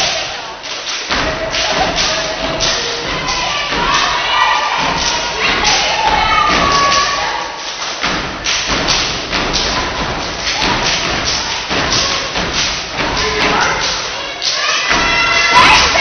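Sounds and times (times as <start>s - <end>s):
hand claps: 0.0s - 4.2s, 4.8s - 16.0s
stomps on stage floor: 8.0s - 14.0s.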